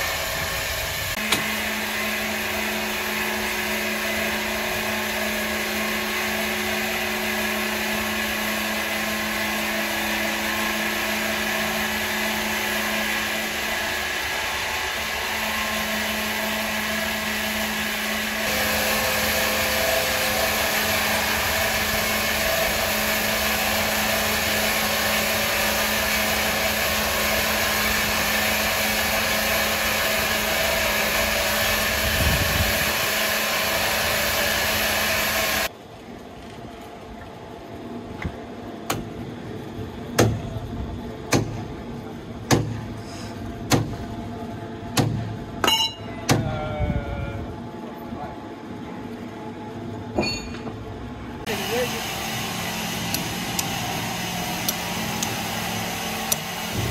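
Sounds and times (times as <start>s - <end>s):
electric saw running: 0.0s - 35.7s, 51.4s - 56.9s.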